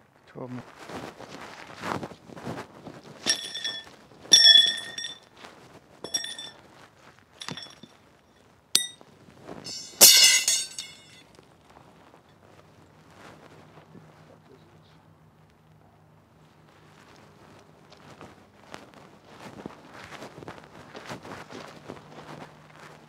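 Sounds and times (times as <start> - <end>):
metal rods clinking: 3.2 - 5.2, 6.0 - 6.6, 7.4 - 7.9, 8.8 - 9.0, 9.6 - 11.2.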